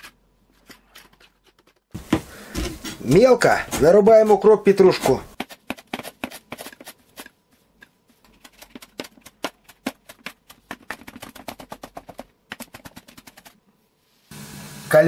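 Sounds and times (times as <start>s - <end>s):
knife chopping herbs on board: 2.0s - 13.5s.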